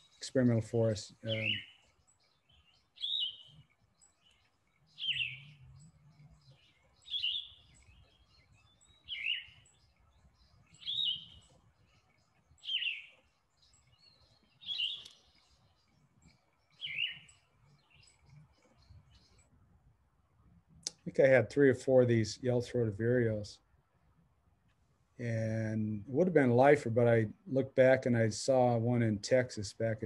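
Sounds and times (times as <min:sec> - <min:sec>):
bird singing falling phrases: 0:00.0 - 0:30.0.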